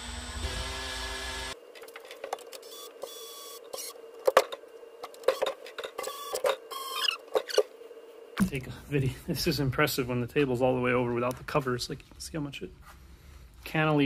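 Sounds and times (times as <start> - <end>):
drill motor running: 0.0 - 1.6
faint steady hum: 1.5 - 14.0.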